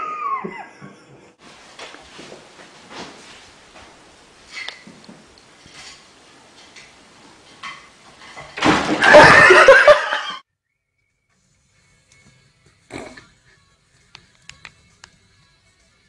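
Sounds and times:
person laughing loudly: 0:00.0 - 0:01.3, 0:09.0 - 0:10.4.

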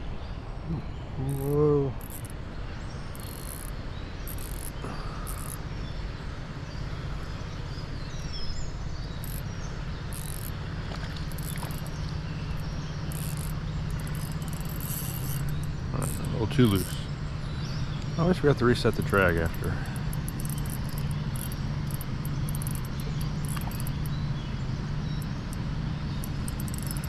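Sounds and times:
fishing reel drag clicking: 0:01.2 - 0:02.4, 0:03.1 - 0:05.6, 0:09.2 - 0:17.0, 0:18.1 - 0:24.2, 0:25.0 - 0:27.0.

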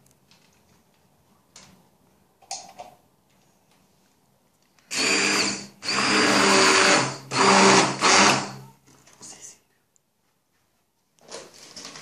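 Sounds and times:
stick blender motor whine: 0:04.9 - 0:08.6.

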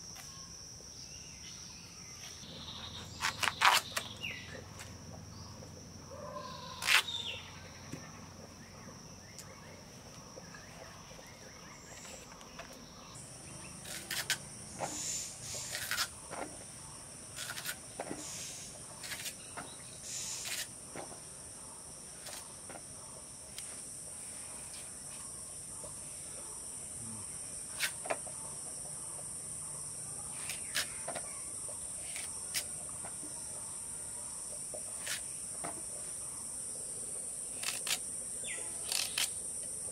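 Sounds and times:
insect chirring: 0:00.0 - 0:39.9
blade cutting pumpkin: 0:13.8 - 0:14.4, 0:15.5 - 0:16.2, 0:17.3 - 0:17.9.

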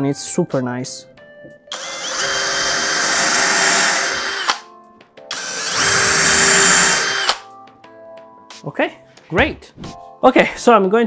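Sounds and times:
cordless drill boring into wood: 0:01.7 - 0:04.6, 0:05.3 - 0:07.4
drill stopping click: 0:01.7 - 0:04.6, 0:05.3 - 0:07.4.

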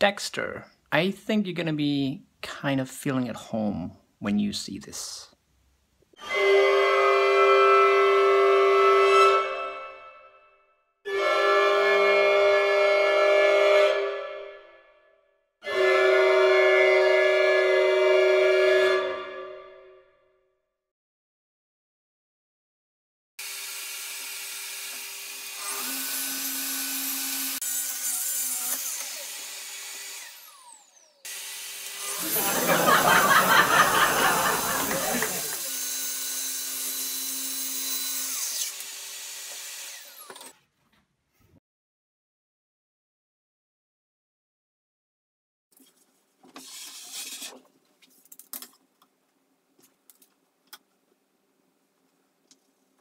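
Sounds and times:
saw blade winding down: 0:23.4 - 0:40.6
track saw cutting wood: 0:23.4 - 0:40.6.

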